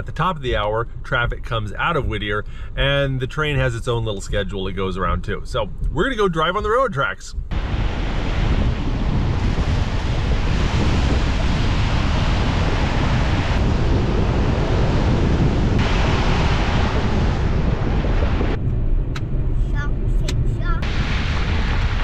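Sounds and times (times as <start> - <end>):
wind buffeting microphone: 4.1 - 22.0
tyre and wind noise: 5.7 - 22.0.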